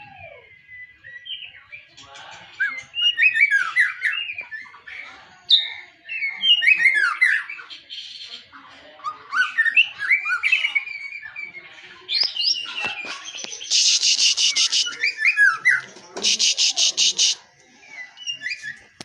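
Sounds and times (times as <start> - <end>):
bird singing whistled phrases: 0.0 - 1.9, 2.6 - 7.7, 9.4 - 17.4, 18.0 - 18.9.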